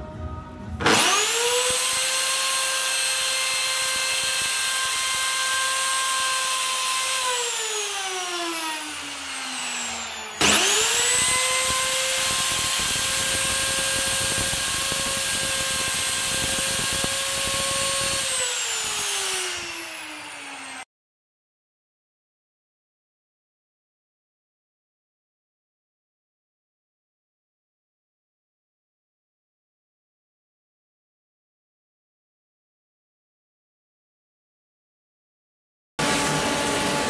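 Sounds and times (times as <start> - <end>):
router motor whining: 0.8 - 20.9, 36.0 - 37.0.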